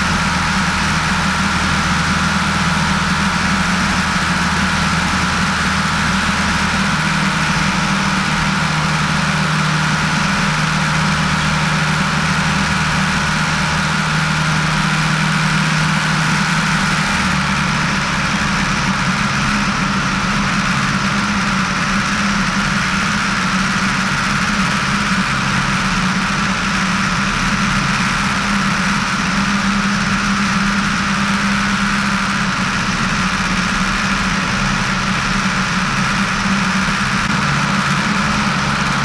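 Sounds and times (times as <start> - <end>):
airplane engine and propeller drone: 0.0 - 39.0.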